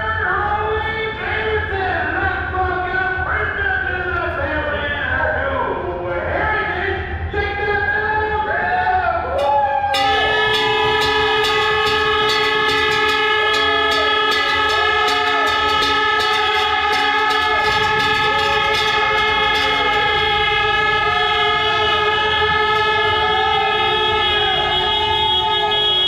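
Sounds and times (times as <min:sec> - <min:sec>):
air horn chord: 0:10.0 - 0:26.0.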